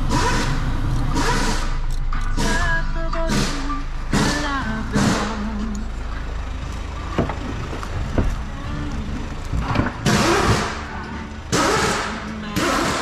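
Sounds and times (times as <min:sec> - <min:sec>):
car engine idling: 0:00.0 - 0:13.0
car door opening clatter: 0:07.0 - 0:08.5, 0:09.3 - 0:13.0.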